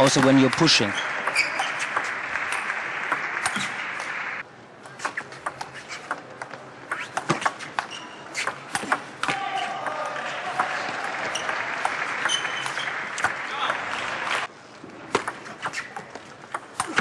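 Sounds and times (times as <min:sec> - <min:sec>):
crowd cheering and applause: 0:00.9 - 0:04.4, 0:09.3 - 0:14.5.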